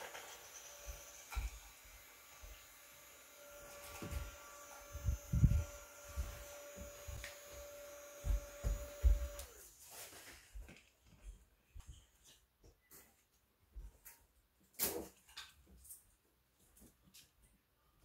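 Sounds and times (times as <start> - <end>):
mini fan motor humming: 0.0 - 9.7.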